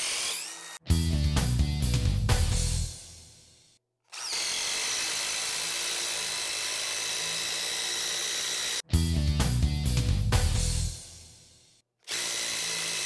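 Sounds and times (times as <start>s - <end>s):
driver motor whine: 0.0s - 0.8s, 4.1s - 8.8s
impact driver hammering screw: 4.1s - 8.8s, 12.1s - 13.0s.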